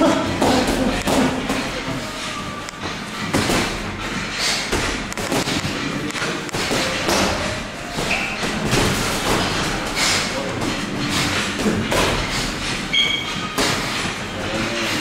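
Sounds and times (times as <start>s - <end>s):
gym background noise: 0.0s - 15.0s
boxing gloves thudding: 6.5s - 14.0s.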